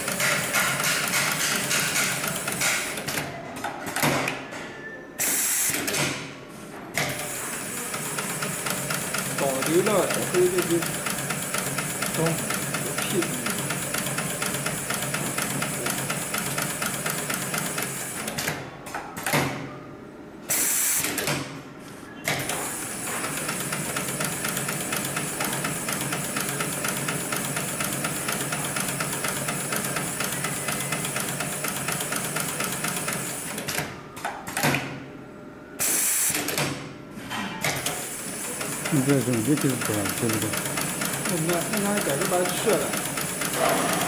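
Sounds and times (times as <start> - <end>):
sewing machine stitching: 0.0 - 3.2, 7.1 - 18.5, 37.9 - 44.0.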